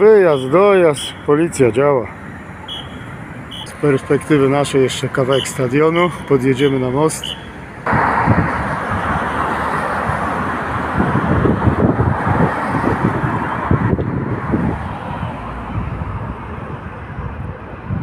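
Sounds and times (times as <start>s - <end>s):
road traffic hiss: 0.0s - 18.0s
wind buffeting microphone: 7.8s - 18.0s.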